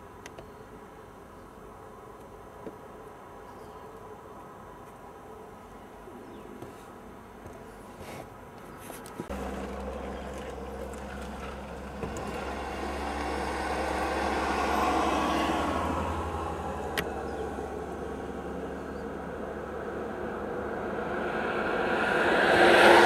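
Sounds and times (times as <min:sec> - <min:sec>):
low engine hum: 0:09.2 - 0:23.0
vehicle passing: 0:09.3 - 0:23.0.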